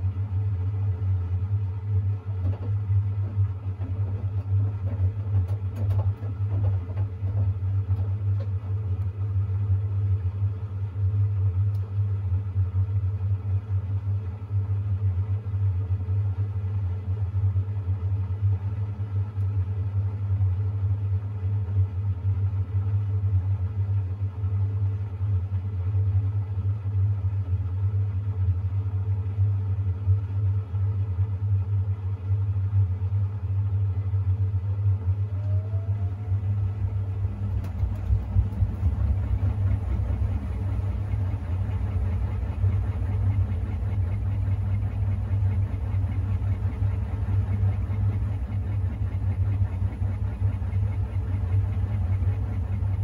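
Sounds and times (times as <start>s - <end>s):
washing machine drum spinning: 0.1s - 9.5s, 34.8s - 53.0s
motor whine: 34.2s - 53.0s.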